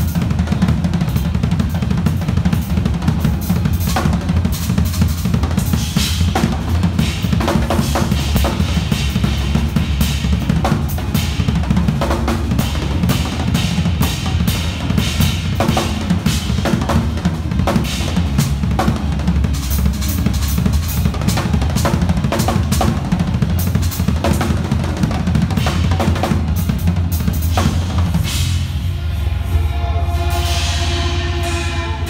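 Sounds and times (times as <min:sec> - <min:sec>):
fast acoustic drumming: 0:00.0 - 0:28.8
cymbal crashes: 0:27.4 - 0:32.0.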